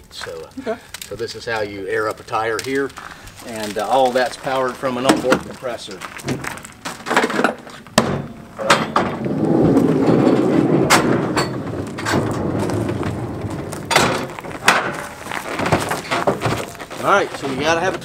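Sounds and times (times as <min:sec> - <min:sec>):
bed slide rolling on rails: 0:09.0 - 0:14.6.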